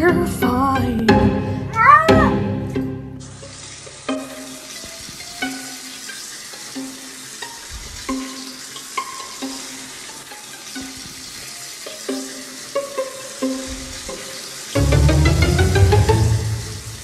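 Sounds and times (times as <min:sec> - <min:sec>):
music of plucked notes: 0:00.0 - 0:03.3, 0:14.8 - 0:17.0
shower spraying water: 0:03.2 - 0:17.0.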